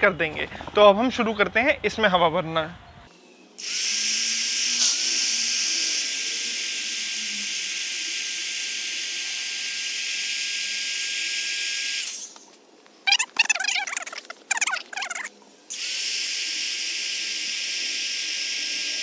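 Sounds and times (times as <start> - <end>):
electric air pump hissing: 3.6 - 12.4, 15.7 - 19.0.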